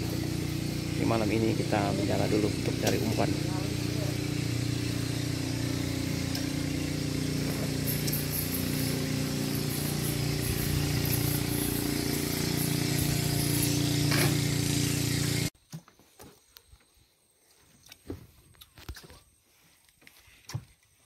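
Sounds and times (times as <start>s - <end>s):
small engine idling: 0.0s - 15.5s.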